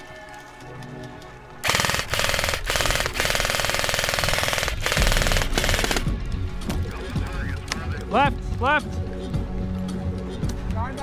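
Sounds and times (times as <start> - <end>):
airsoft gun firing full-auto: 1.6 - 6.1.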